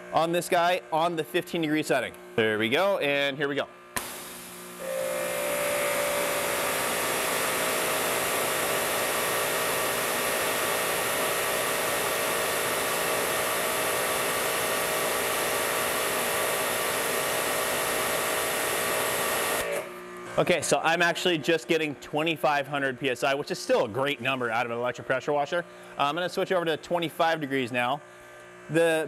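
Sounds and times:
motor and pump hum: 0.0s - 29.0s.

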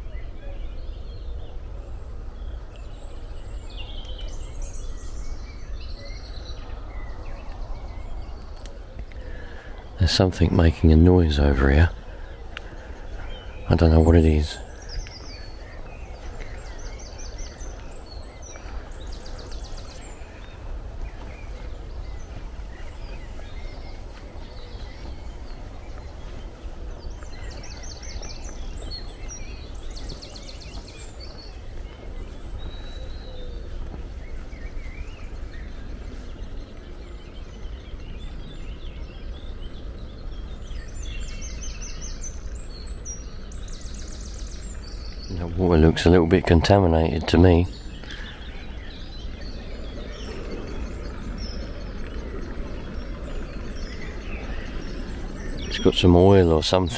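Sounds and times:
songbird trilling: 2.4s - 56.9s
distant rushing water: 33.4s - 56.9s.

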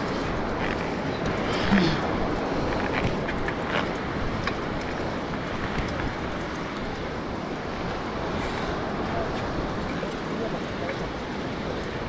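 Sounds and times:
bicycle clicks and rattles: 0.0s - 12.0s
wind rushing on camera: 0.0s - 12.0s.

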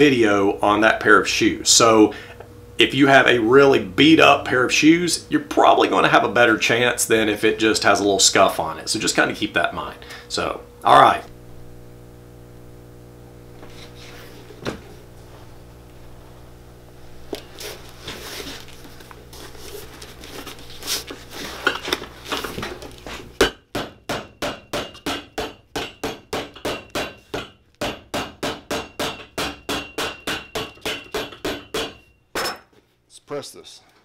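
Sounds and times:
hammer striking leather: 23.4s - 32.1s.

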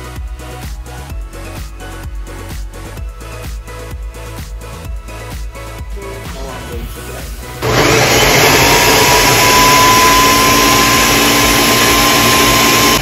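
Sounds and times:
electric blender motor whining: 7.6s - 13.0s.

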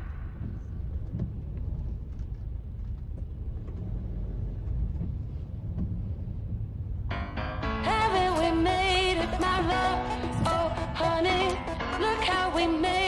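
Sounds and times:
car road rumble: 0.0s - 13.0s.

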